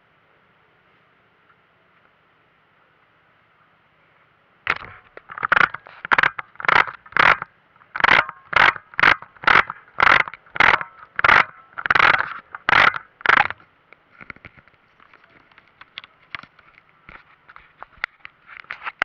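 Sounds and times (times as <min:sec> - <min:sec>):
rhythmic scraping with footsteps: 0:04.7 - 0:19.0.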